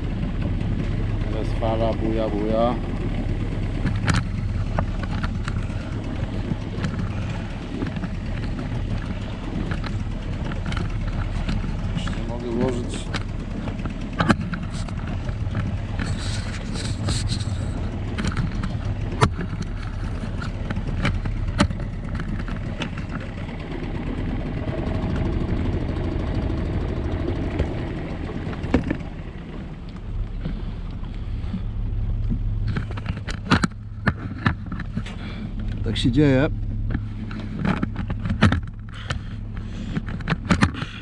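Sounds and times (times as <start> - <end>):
boat motor humming: 0.0 - 41.0
waves: 0.0 - 41.0.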